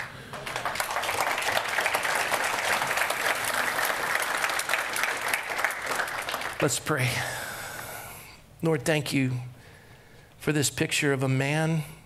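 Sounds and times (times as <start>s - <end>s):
congregation applauding: 0.0s - 6.8s.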